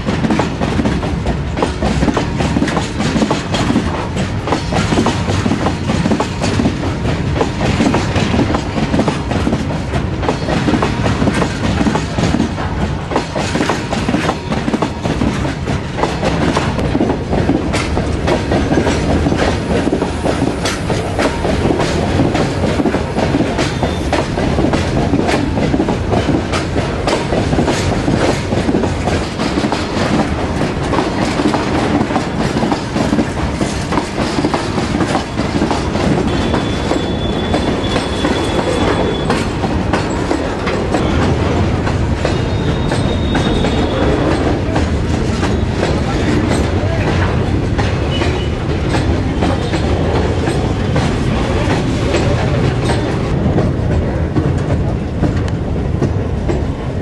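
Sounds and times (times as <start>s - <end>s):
train wheels clattering over rails: 0.0s - 57.0s
wheel squealing on rail: 10.2s - 12.2s, 13.3s - 16.8s, 17.8s - 25.6s, 30.9s - 53.3s.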